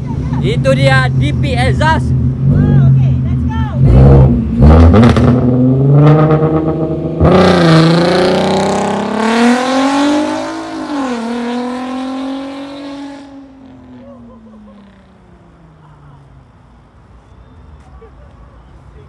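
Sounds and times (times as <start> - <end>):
car engine accelerating hard: 3.8 - 14.0.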